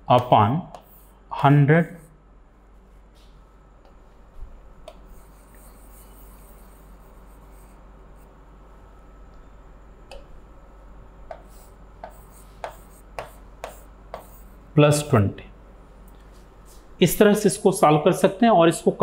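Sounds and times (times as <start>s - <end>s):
steady low hum: 0.0s - 19.0s
marker pen writing on whiteboard: 0.2s - 1.2s, 4.8s - 8.4s, 11.2s - 14.7s.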